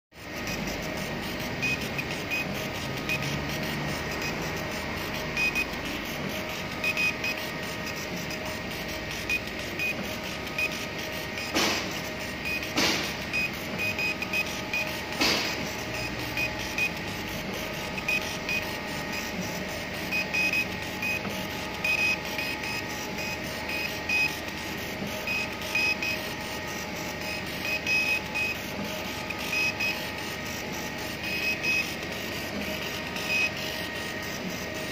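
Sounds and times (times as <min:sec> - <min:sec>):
stepper motors whirring: 0:00.3 - 0:34.9.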